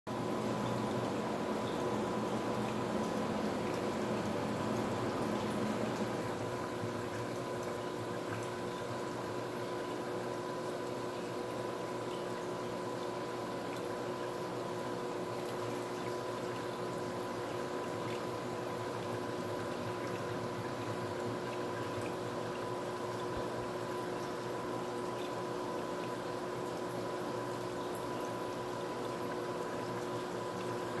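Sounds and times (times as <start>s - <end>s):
constant tonal hum: 0.1s - 10.4s
water trickling: 0.1s - 31.0s.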